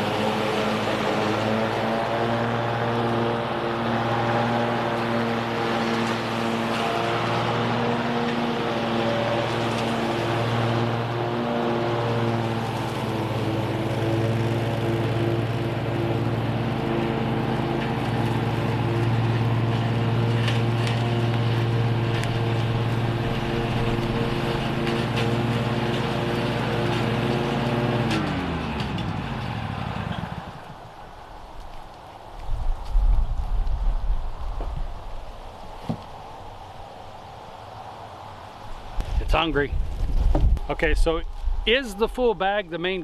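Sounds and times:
lawn mower engine running: 0.0s - 43.0s.

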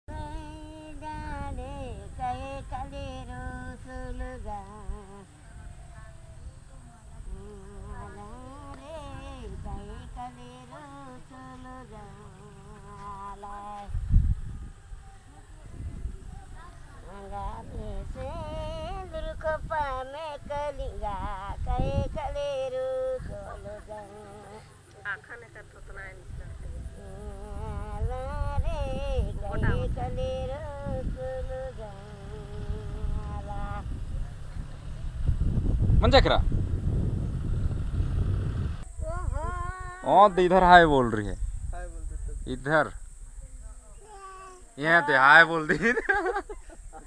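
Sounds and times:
woman singing unaccompanied: 0.1s - 34.5s, 38.9s - 40.5s.

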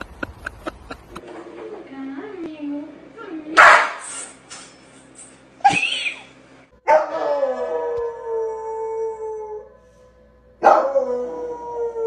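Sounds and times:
dog howling: 6.9s - 9.7s, 10.6s - 12.0s.

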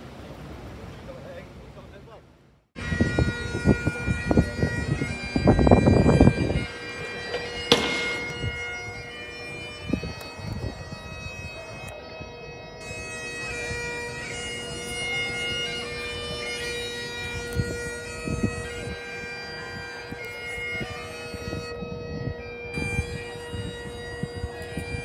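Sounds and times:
low thumps: 2.8s - 11.1s
bagpipe music: 2.8s - 25.0s.

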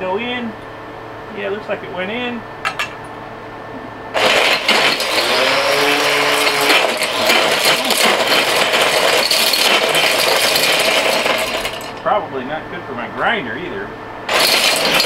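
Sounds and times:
motor running loud: 4.1s - 12.0s, 14.3s - 15.0s
hammers clattering and rattling: 4.2s - 12.0s, 14.3s - 15.0s.

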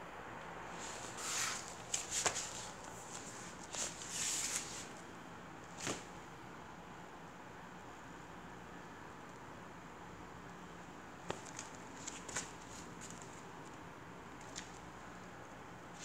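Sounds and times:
faint steady hiss: 0.0s - 16.0s
hissy rustles: 0.7s - 5.0s.

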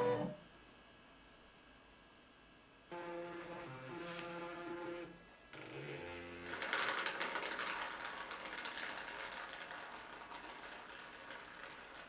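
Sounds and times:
liquid pattering on plastic wrapper: 6.4s - 12.0s.

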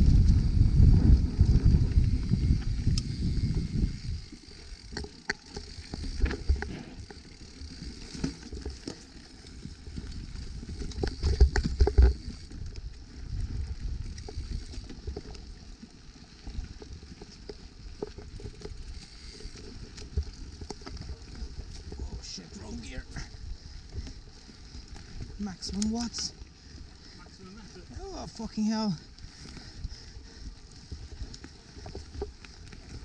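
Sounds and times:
wind on microphone: 0.0s - 5.0s
bike rattling over bumps: 0.0s - 33.0s
bike tyres on dirt: 0.0s - 33.0s.

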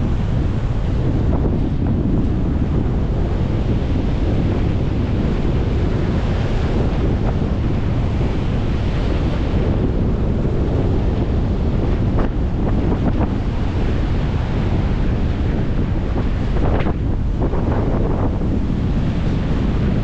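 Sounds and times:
surf breaking and churning: 0.0s - 20.0s
wind rumbling on microphone: 0.0s - 20.0s.

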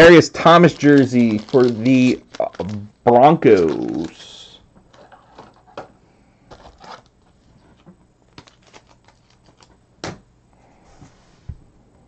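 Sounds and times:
trading cards clicking and rustling: 0.4s - 2.8s, 3.4s - 4.3s, 7.7s - 9.8s.

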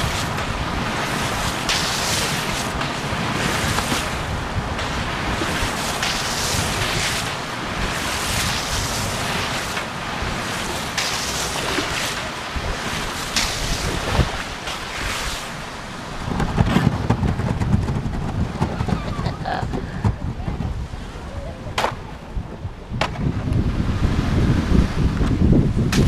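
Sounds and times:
paddle splashing in water: 0.0s - 17.0s
wind buffeting microphone: 0.0s - 26.0s.

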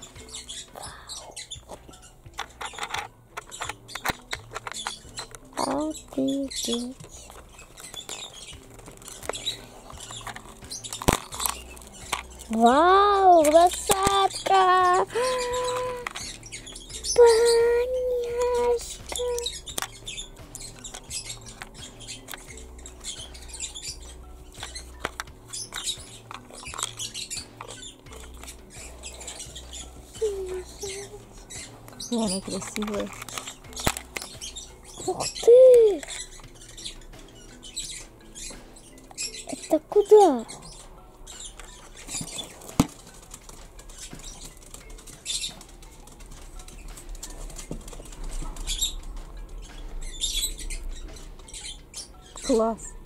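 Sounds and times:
plastic toy pieces handled: 1.7s - 16.4s, 18.2s - 20.0s, 20.7s - 23.2s, 24.6s - 28.6s, 31.9s - 35.2s, 36.0s - 36.3s, 41.5s - 48.7s
plastic toy pieces clicking: 2.3s - 16.4s, 18.2s - 23.0s, 24.6s - 28.6s, 31.9s - 36.4s.

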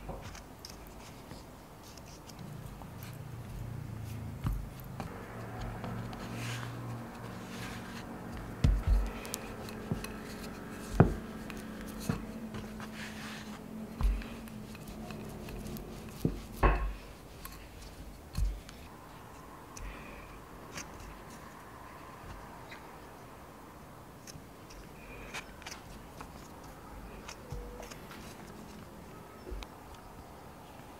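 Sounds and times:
hands pressing pastry: 0.0s - 18.9s, 24.3s - 29.7s
low steady hum: 0.0s - 30.9s
dull knocks on wooden board: 11.0s - 11.2s.

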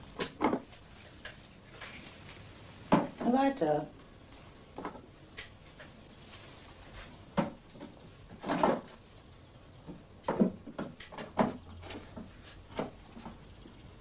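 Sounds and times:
objects knocking and clattering: 0.1s - 1.9s, 2.9s - 3.3s, 4.8s - 5.9s, 7.3s - 9.0s, 9.9s - 13.4s.

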